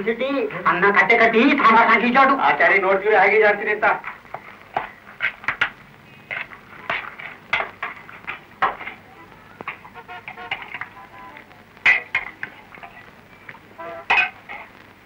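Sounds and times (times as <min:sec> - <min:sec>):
dishes and utensils clinking: 0:04.8 - 0:09.0, 0:09.7 - 0:10.9, 0:11.8 - 0:13.0, 0:14.0 - 0:14.7.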